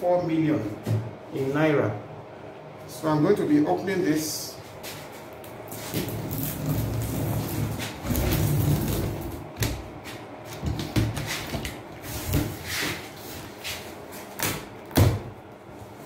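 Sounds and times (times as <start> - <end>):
cardboard flaps scraping: 5.0 - 9.8.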